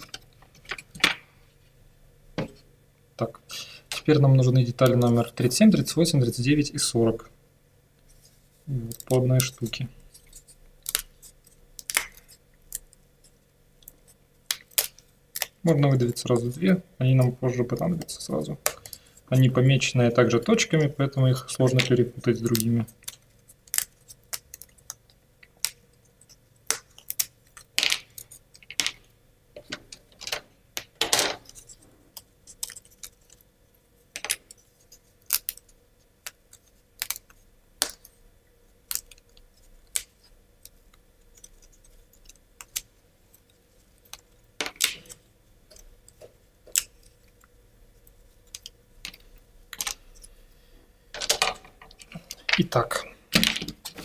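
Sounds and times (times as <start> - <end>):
wooden pieces clattering: 27.8 - 29.0, 29.6 - 31.7, 51.1 - 52.8.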